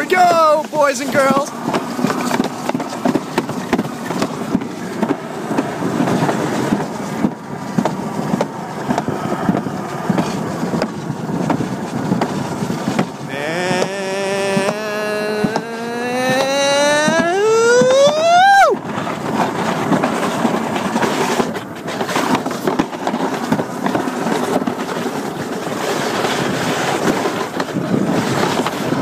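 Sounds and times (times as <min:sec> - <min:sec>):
sled rumbling down a track: 0:00.0 - 0:29.0
high rising tone: 0:13.3 - 0:18.7.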